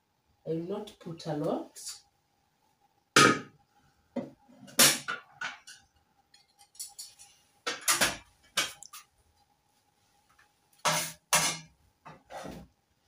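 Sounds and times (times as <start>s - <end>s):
dishes and utensils clattering: 4.6s - 9.0s, 10.8s - 12.6s.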